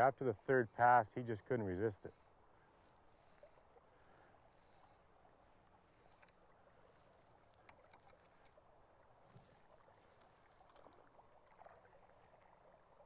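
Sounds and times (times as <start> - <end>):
faint river water: 0.0 - 13.0
soft ticks: 6.0 - 6.4, 7.5 - 8.6.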